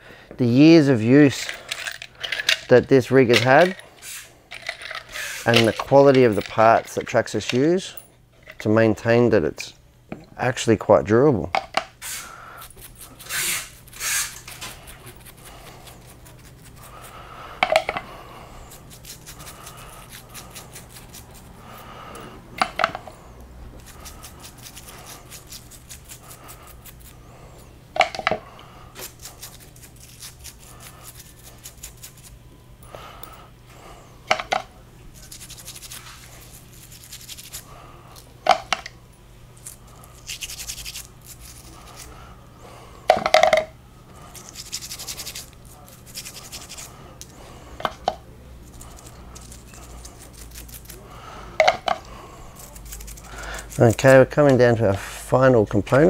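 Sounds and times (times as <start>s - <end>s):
metal parts clinking down: 1.3s - 8.7s
toothbrush scrubbing metal gears: 12.0s - 17.1s, 18.6s - 21.6s, 23.8s - 27.2s, 29.0s - 32.4s, 35.1s - 37.7s, 39.6s - 42.2s, 44.3s - 46.9s, 48.6s - 51.0s, 52.6s - 54.9s.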